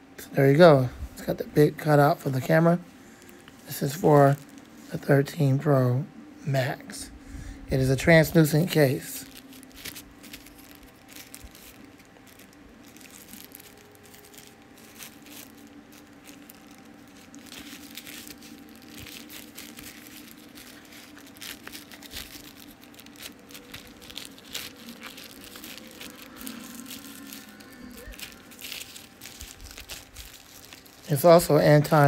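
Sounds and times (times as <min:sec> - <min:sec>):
faint low hum: 0:00.0 - 0:32.0
plastic packaging crinkling: 0:00.6 - 0:05.6, 0:07.7 - 0:32.0.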